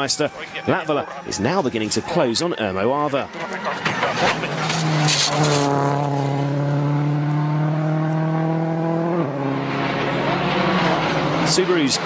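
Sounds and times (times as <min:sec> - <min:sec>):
rally car engine at high revs: 0:03.4 - 0:12.0.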